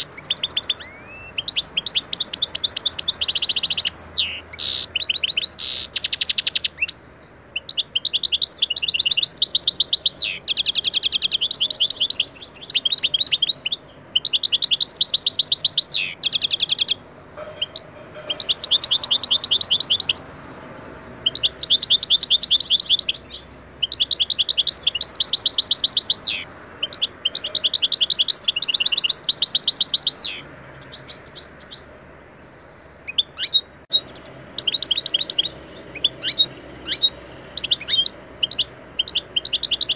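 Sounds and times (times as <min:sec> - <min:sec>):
goldfinch twittering song: 0:00.0 - 0:31.9, 0:32.6 - 0:39.9.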